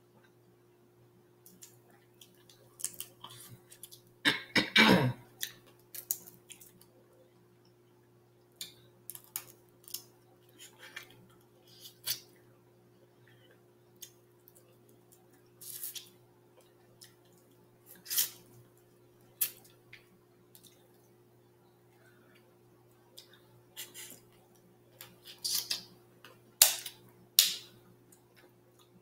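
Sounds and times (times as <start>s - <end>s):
faint steady hum: 0.0s - 29.0s
crab shells cracking: 1.5s - 4.0s, 5.4s - 6.8s, 8.6s - 10.1s.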